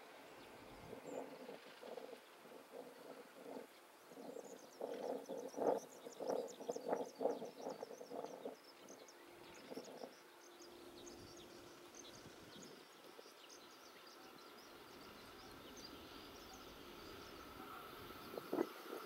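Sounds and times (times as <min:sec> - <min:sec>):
electric train whine: 0:14.6 - 0:19.0.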